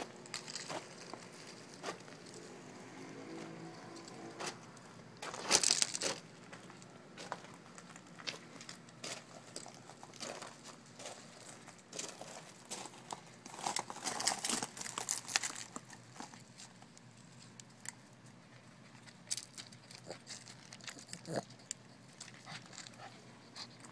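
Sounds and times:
dry leaves and gravel crunching: 0.0s - 17.6s.

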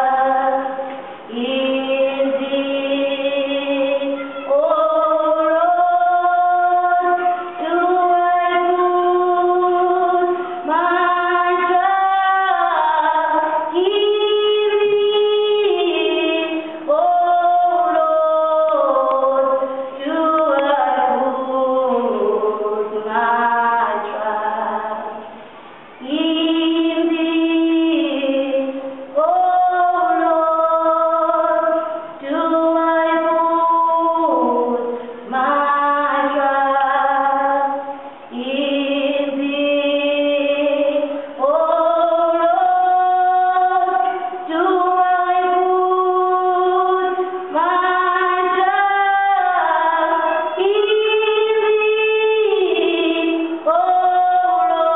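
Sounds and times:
women singing in harmony: 0.0s - 54.9s.

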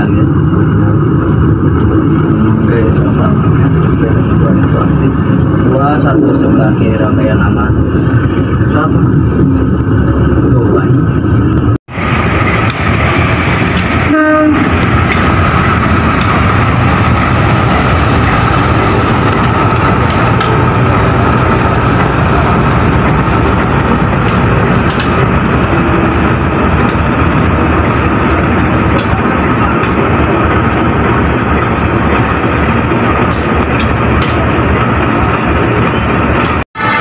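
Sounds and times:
passenger train running: 0.0s - 37.0s
train horn blast: 14.0s - 14.8s.

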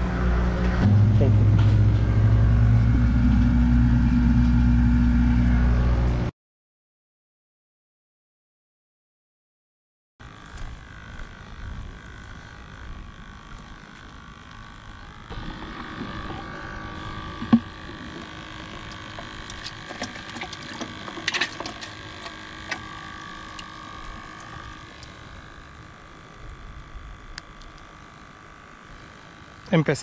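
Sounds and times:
aerator humming: 0.0s - 6.3s, 10.2s - 30.0s
plastic bucket clicks and knocks: 17.4s - 18.1s.

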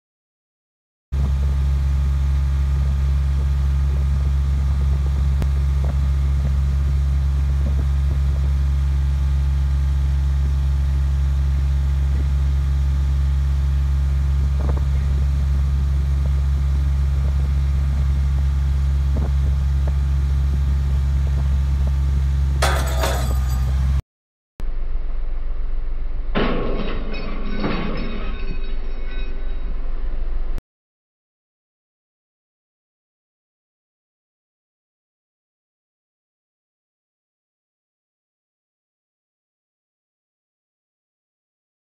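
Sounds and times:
low engine drone: 1.2s - 24.0s, 24.6s - 30.6s.

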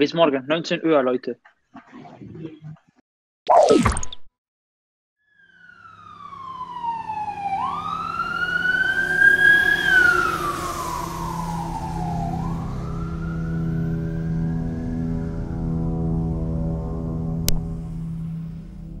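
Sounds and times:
wailing siren: 5.2s - 18.4s
low steady drone: 7.1s - 19.0s.

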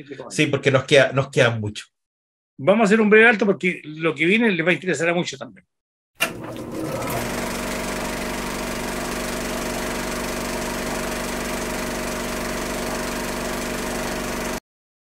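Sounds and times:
film projector whirring and clattering: 6.2s - 14.6s.

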